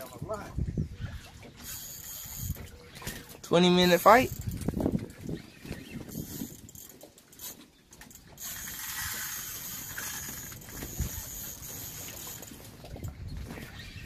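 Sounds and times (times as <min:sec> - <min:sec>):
fishing reel high-pitched whir: 0:01.6 - 0:02.7, 0:05.8 - 0:12.6
fishing reel drag clicking: 0:01.6 - 0:02.8, 0:05.8 - 0:12.6.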